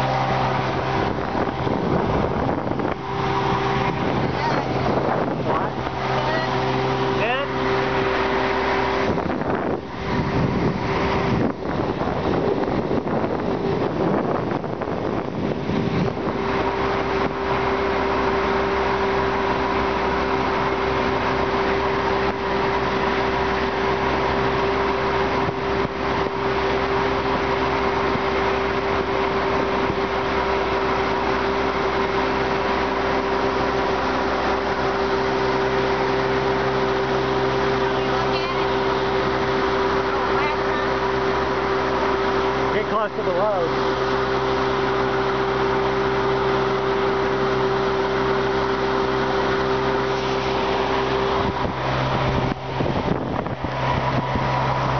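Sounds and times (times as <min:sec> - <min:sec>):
wind buffeting microphone: 0:00.0 - 0:32.8, 0:43.7 - 0:54.9
outboard motor running: 0:00.0 - 0:54.9.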